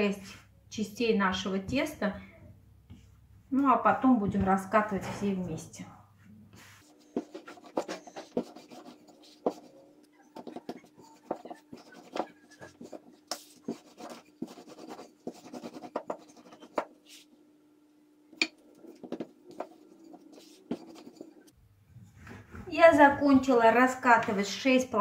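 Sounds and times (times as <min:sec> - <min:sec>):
hands scraping dough on mat: 0:06.5 - 0:17.3, 0:18.7 - 0:21.6.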